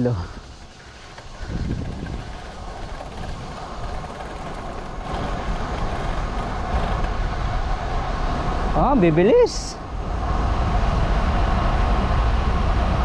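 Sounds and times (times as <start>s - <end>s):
wind rushing over microphone: 0.0s - 13.0s
tyre rumble on asphalt: 0.4s - 7.9s.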